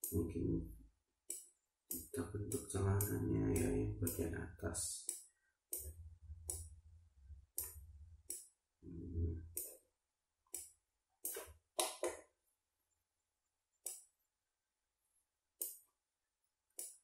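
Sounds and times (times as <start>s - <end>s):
computer mouse clicking: 1.3s - 4.3s, 5.0s - 6.7s, 7.6s - 8.5s, 10.5s - 12.2s, 13.8s - 14.1s, 15.6s - 15.8s, 16.8s - 17.0s.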